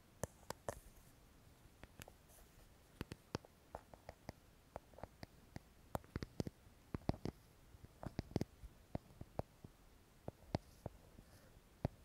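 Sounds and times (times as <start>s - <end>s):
soft clicks and taps: 1.8s - 2.2s, 3.0s - 12.0s.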